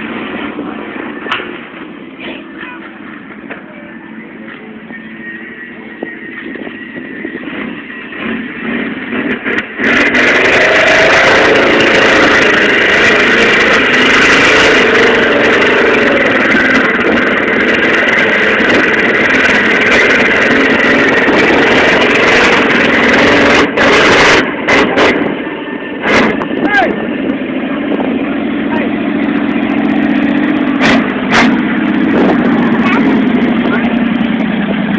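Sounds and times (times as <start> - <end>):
engine revving high: 7.3 - 34.9.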